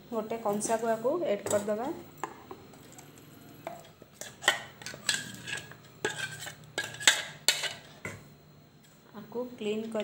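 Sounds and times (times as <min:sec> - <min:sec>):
spoon scraping metal bowl: 0:03.7 - 0:08.2.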